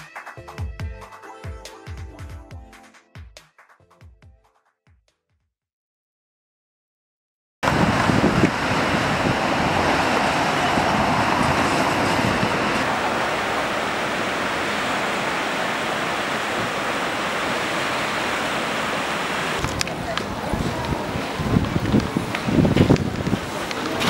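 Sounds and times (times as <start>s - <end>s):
rushing water: 7.6s - 24.0s.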